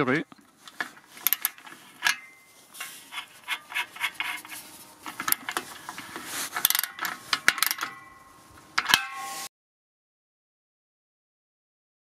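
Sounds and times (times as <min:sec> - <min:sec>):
ratchet spanner clicking: 0:06.6 - 0:08.0.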